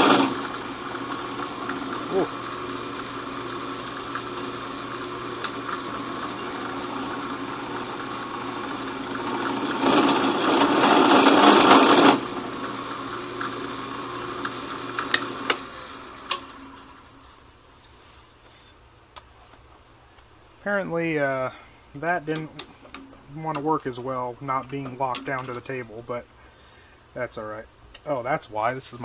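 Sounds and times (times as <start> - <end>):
loud rough drill cutting steel: 0.0 - 16.1
drill press spindle running: 0.0 - 17.2.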